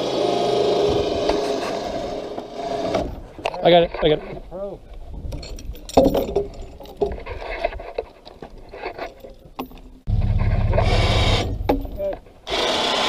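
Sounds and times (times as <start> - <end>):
electric winch motor hum: 0.0 - 3.0, 10.2 - 11.6
chain and hook clattering on logs: 3.0 - 10.6, 11.4 - 12.4.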